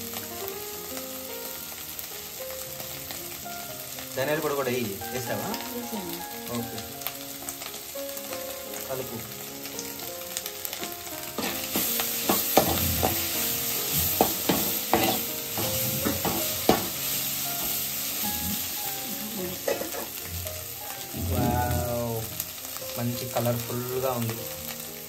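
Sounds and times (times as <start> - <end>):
food sizzling: 0.0 - 25.0
metal spatula scraping pan: 13.9 - 17.0.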